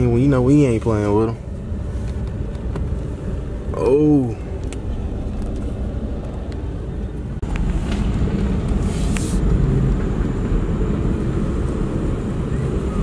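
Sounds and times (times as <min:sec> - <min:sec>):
vehicle engines rumbling: 0:00.0 - 0:13.0
short hiss: 0:08.8 - 0:09.4.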